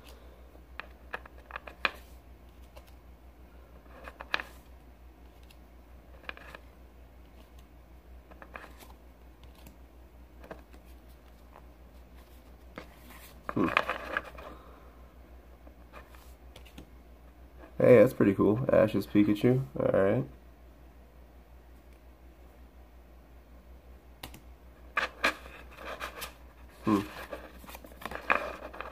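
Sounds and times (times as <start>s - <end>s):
stack of cards rustling: 0.0s - 3.0s, 3.7s - 14.6s, 15.7s - 16.9s, 24.2s - 28.9s.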